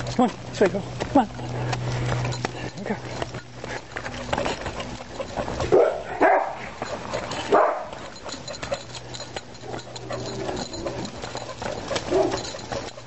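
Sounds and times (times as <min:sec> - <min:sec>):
dog barking: 0:05.6 - 0:06.7, 0:07.5 - 0:08.1, 0:12.0 - 0:12.6.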